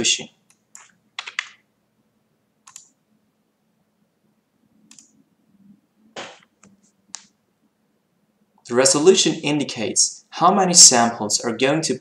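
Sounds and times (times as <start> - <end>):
faint low hum: 0.0 - 10.4
computer mouse clicks: 2.6 - 3.0, 4.9 - 5.2, 6.2 - 7.4.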